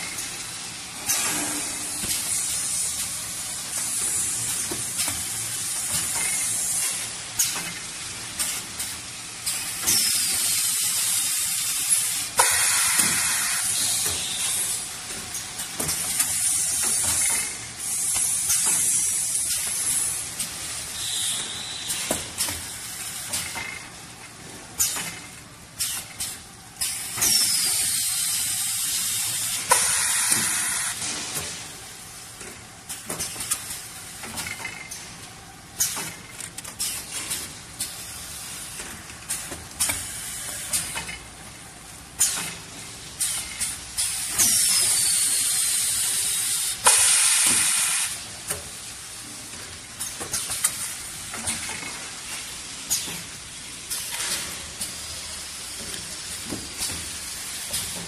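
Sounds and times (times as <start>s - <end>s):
machine clicks and clacks: 0.0s - 58.0s
hissing air bursts: 8.8s - 14.9s, 15.6s - 23.4s, 25.8s - 32.1s, 43.2s - 48.3s.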